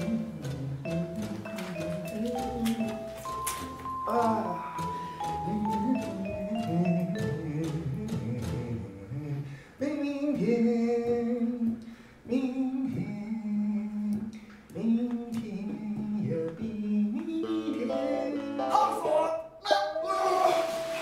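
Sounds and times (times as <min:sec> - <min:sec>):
light musical accompaniment: 0:00.0 - 0:09.5
person singing slow melody: 0:00.0 - 0:19.0.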